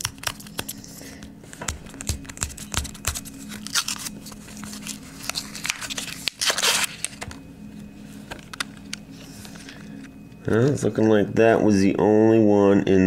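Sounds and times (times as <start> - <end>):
paper crinkling: 0.0 - 7.5
paper wrapper tearing: 1.9 - 7.2.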